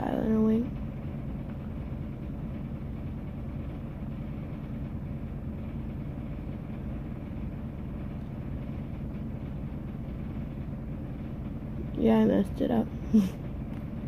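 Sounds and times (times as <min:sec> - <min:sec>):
low hum and rumble: 0:00.0 - 0:14.0.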